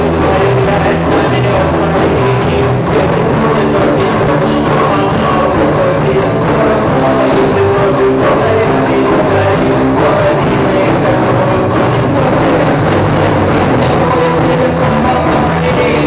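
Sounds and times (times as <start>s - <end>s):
electric guitar: 0.0s - 16.0s
rock band playing: 0.0s - 16.0s.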